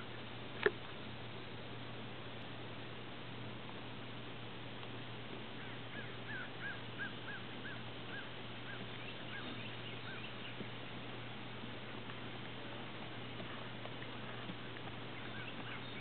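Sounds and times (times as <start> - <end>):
steady low hum: 0.0 - 16.0
bird calling: 5.6 - 10.7, 14.2 - 16.0.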